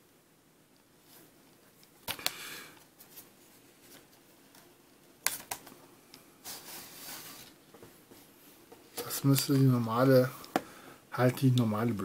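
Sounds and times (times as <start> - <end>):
cardboard scraping rustle: 6.4 - 7.6.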